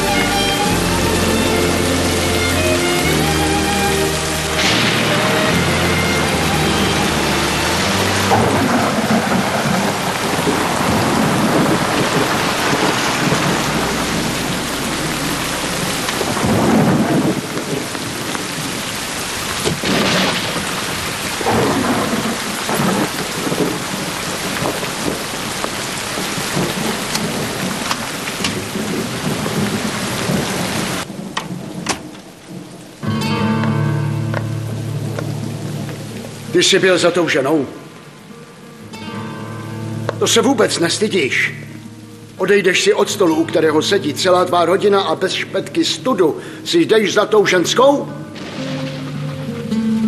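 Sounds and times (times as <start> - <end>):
heavy rain pouring: 0.0 - 50.0
thunder rolling: 4.2 - 33.0, 48.3 - 50.0.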